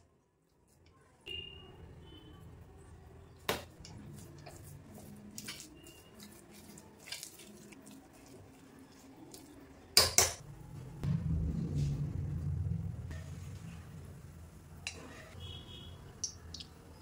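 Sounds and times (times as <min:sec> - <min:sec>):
low steady rumble: 0:10.4 - 0:15.3.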